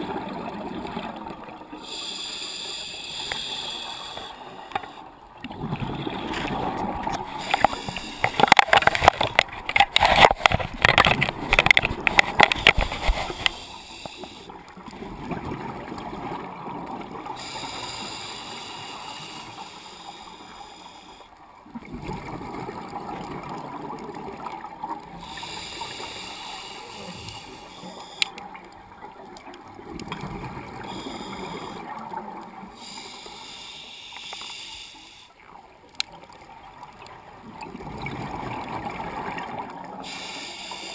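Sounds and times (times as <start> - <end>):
regulator hissing inhale: 1.8 - 5.1, 7.3 - 8.5, 13.0 - 14.6, 17.4 - 21.3, 25.2 - 28.4, 30.8 - 32.0, 32.8 - 35.4, 40.0 - 40.9.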